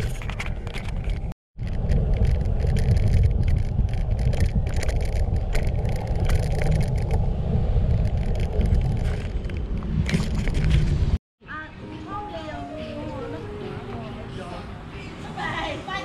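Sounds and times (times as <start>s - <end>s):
wind buffeting microphone: 0.0s - 11.2s.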